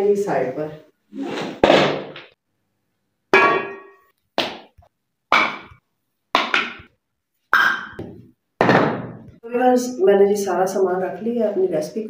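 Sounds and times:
kitchenware knocking on concrete floor: 3.4 - 4.1, 5.3 - 5.8, 6.4 - 6.9, 7.6 - 9.3.

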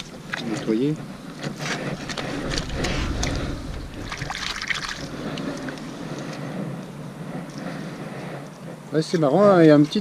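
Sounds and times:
low rumble: 2.0 - 6.4.

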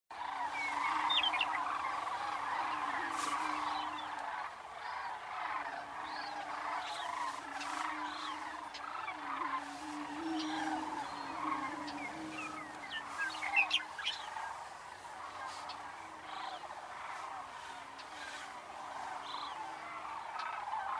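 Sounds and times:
meadowlark chirps: 0.2 - 14.6
cranes chattering: 0.2 - 17.5
prairie-chickens booming: 0.2 - 20.9.

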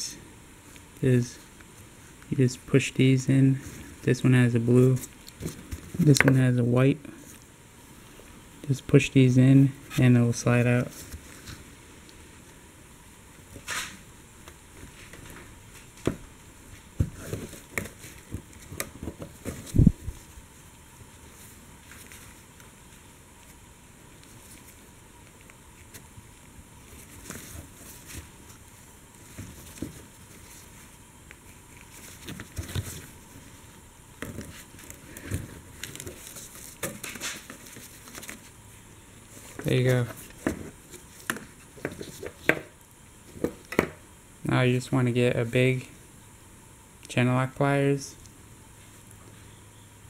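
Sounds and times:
gloves rustling: 9.6 - 42.6.

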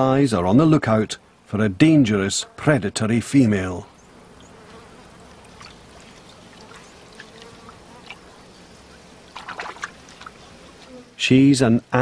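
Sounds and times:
insects: 0.0 - 12.0
trickling water: 5.3 - 8.3, 8.9 - 10.4.

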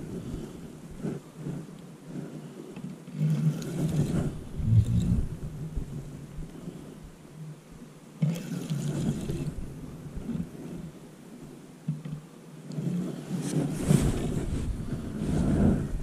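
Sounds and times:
wind buffeting microphone: 3.5 - 7.2, 13.5 - 16.0.

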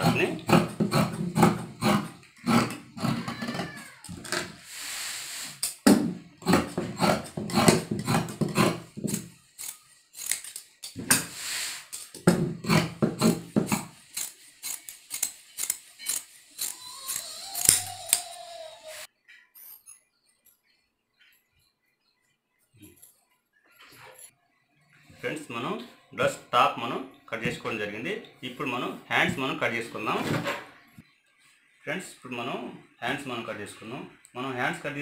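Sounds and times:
shears snipping fabric: 6.4 - 18.4.

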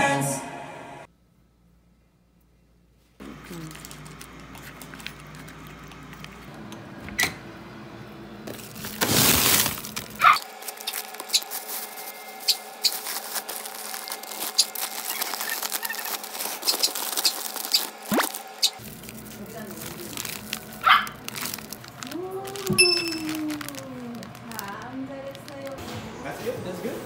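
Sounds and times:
rustling: 8.5 - 25.8
small hard objects clinking: 8.5 - 25.8.

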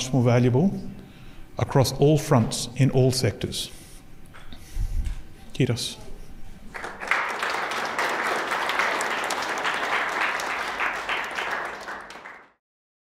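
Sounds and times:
audience applauding: 6.7 - 12.6.

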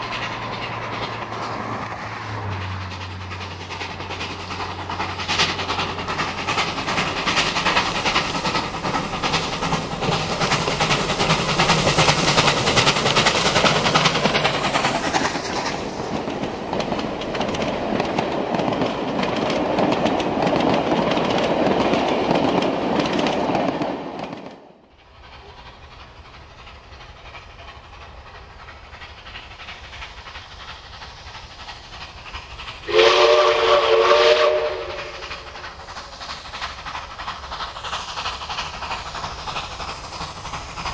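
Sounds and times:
steam locomotive exhaust: 0.0 - 23.8, 24.7 - 40.9
carriage wheels rattling over rail joints: 0.0 - 24.5
steam whistle blast: 32.8 - 35.3.

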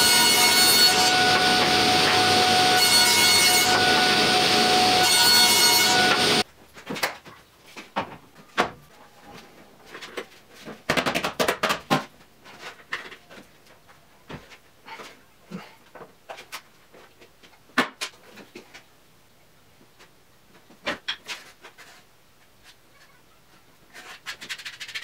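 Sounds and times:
table saw whining: 0.0 - 6.4.

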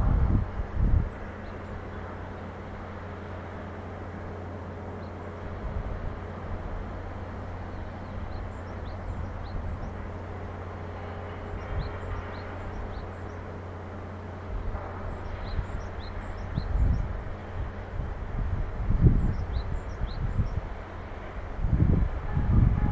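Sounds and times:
low hum: 0.0 - 22.9
small birds chirping: 7.5 - 10.4, 11.1 - 13.6, 15.0 - 17.2, 19.0 - 20.7.

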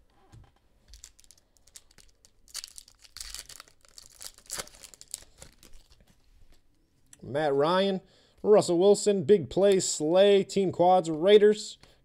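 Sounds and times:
foil pack tearing and crinkling: 0.9 - 6.0.

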